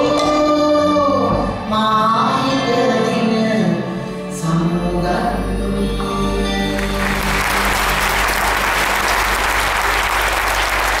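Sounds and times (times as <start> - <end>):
audience applause: 6.8 - 11.0.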